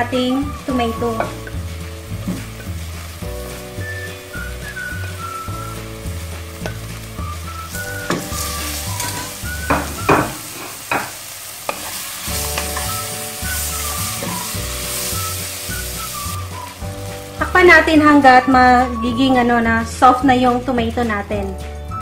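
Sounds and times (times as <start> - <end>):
soft background music: 0.0 - 22.0
tomatoes sizzling in pot: 0.0 - 22.0
spoon knocking against pot: 9.7 - 11.1.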